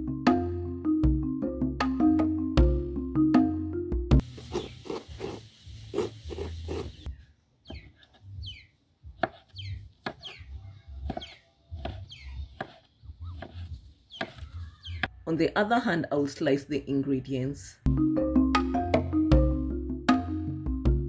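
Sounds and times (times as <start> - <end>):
knife shredding papaya: 4.3 - 7.0
knife chopping on wooden table: 4.4 - 7.0, 9.2 - 10.4, 11.0 - 14.4
bird chirps: 5.8 - 8.8, 9.4 - 15.2.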